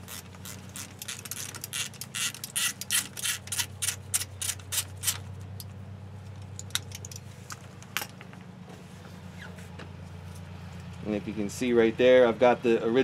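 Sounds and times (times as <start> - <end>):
socket ratchet clicking: 0.0 - 5.2.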